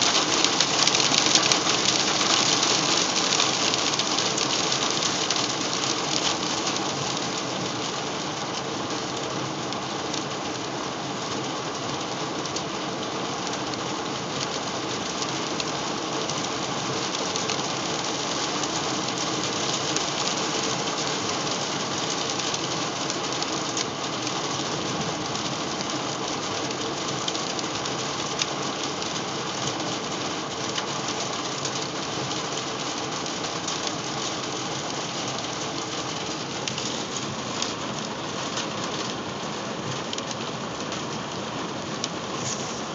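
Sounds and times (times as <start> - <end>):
hail pelting van roof: 0.0 - 7.9.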